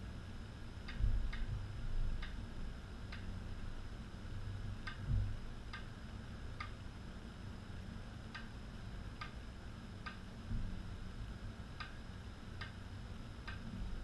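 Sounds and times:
dull low thumps: 0:00.9 - 0:02.3
metronome clicking: 0:13.4 - 0:13.6.

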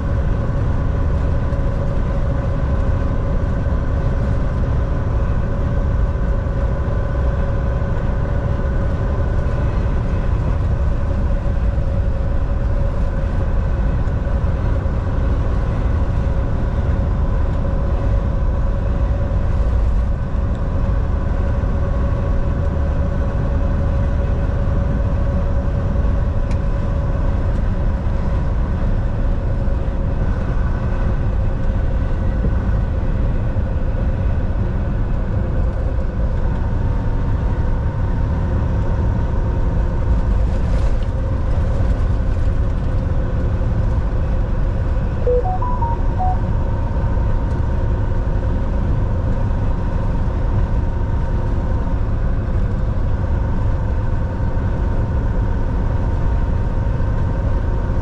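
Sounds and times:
truck engine and road drone: 0:00.0 - 0:58.0
short electronic beeps: 0:45.3 - 0:46.5.

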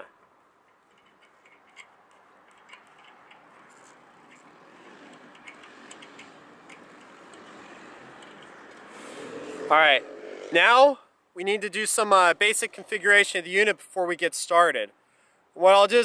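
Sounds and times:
faint metal clicks and ticks: 0:00.2 - 0:08.9.

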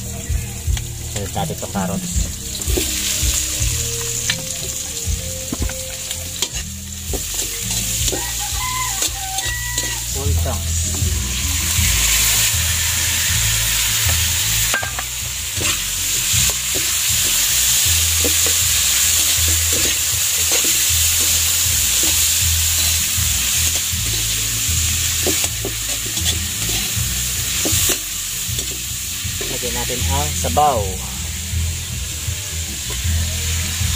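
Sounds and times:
vegetables sizzling in oil: 0:00.0 - 0:33.9
low rumble: 0:10.3 - 0:14.4.

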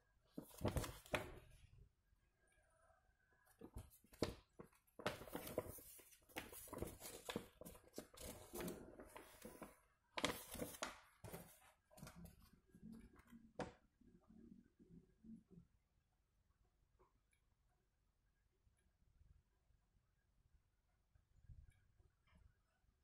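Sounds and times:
faint rustling and handling: 0:00.3 - 0:01.6, 0:03.5 - 0:13.8.

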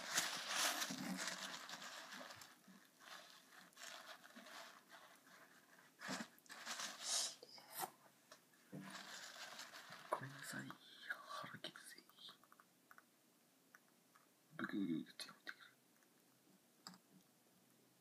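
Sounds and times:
paper towel rustling and rubbing: 0:00.0 - 0:07.9, 0:08.7 - 0:10.6.

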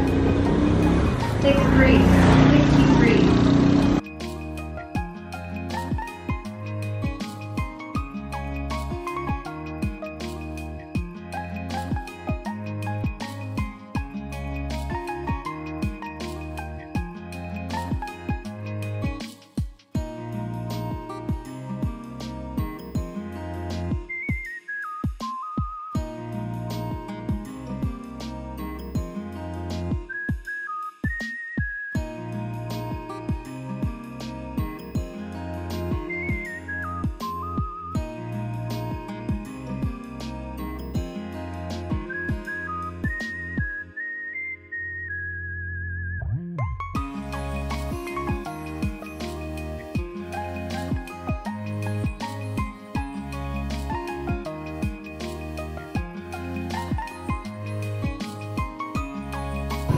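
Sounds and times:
deep bass: 0:00.0 - 0:04.7, 0:59.2 - 0:59.9
background music sustained notes: 0:00.0 - 0:19.2, 0:20.0 - 0:24.8, 0:26.0 - 0:30.2, 0:32.0 - 0:45.0, 0:46.2 - 0:59.9.

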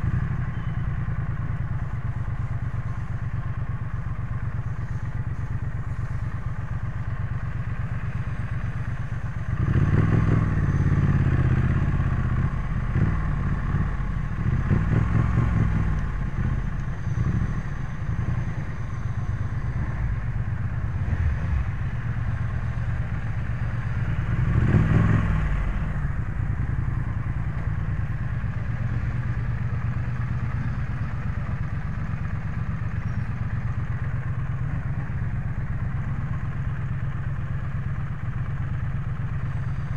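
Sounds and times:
motorcycle engine revving: 0:07.6 - 0:36.6.

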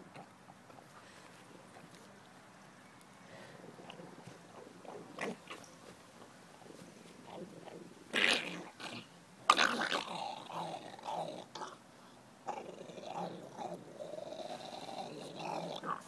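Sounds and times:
dog growling: 0:07.2 - 0:11.8, 0:12.4 - 0:16.0.

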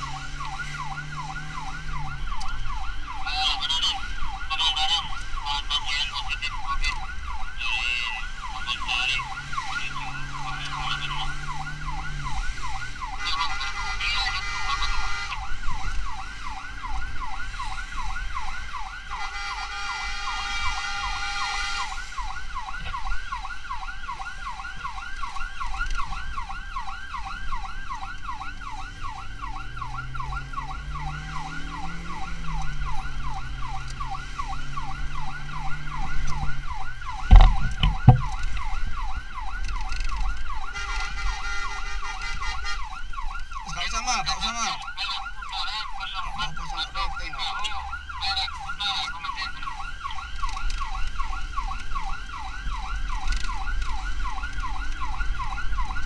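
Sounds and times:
vehicle engine: 0:00.0 - 0:04.2, 0:08.4 - 0:16.6, 0:26.6 - 0:51.6
siren yelping: 0:00.0 - 0:56.0.

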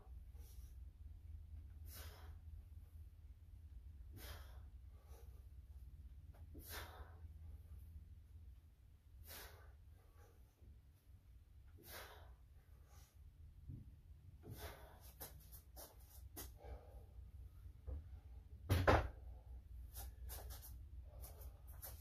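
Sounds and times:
man exhaling forcefully: 0:01.8 - 0:02.4, 0:04.1 - 0:04.7, 0:06.5 - 0:07.3, 0:09.2 - 0:09.8, 0:11.8 - 0:12.4.

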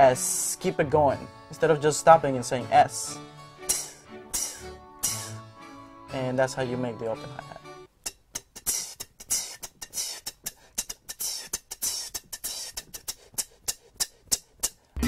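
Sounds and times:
beatboxed open hi-hat hiss: 0:03.6 - 0:05.4, 0:08.0 - 0:15.0
beatboxed hi-hat clicks: 0:03.7 - 0:05.4, 0:08.0 - 0:15.0.

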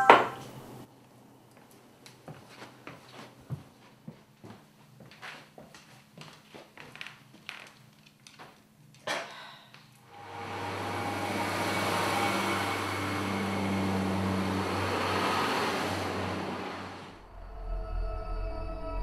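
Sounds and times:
train wheel and rail noise: 0:10.1 - 0:17.2
diesel train engine drone: 0:10.1 - 0:19.0.

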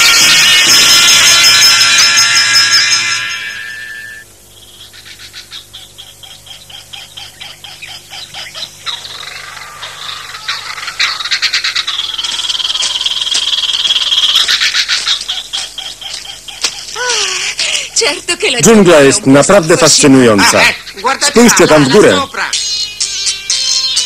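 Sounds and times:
high steady trill: 0:00.0 - 0:04.5
frogs croaking chorus: 0:00.0 - 0:24.0.

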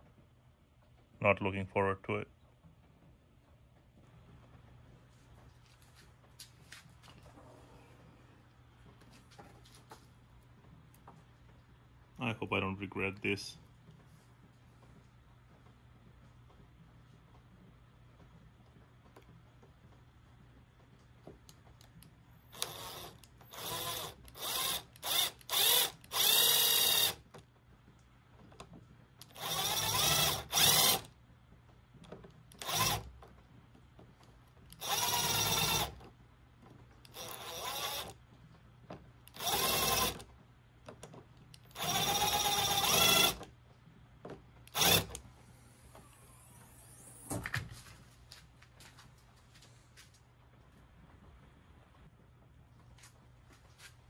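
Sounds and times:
electric drill boring through metal: 0:22.5 - 0:27.2, 0:29.3 - 0:31.1, 0:32.6 - 0:33.1, 0:34.8 - 0:36.0, 0:37.1 - 0:38.1, 0:39.3 - 0:40.2, 0:41.7 - 0:43.4, 0:44.7 - 0:45.2.

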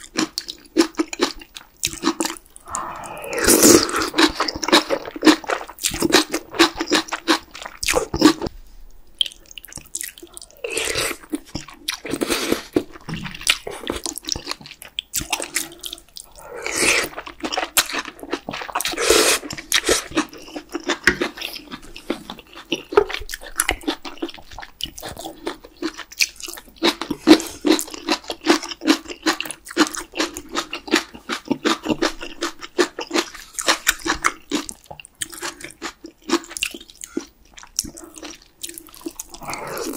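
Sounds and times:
slurping noodles and broth: 0:01.9 - 0:08.5, 0:10.6 - 0:14.6, 0:15.2 - 0:20.4, 0:39.3 - 0:39.9
wet chewing and biting: 0:09.2 - 0:39.9.

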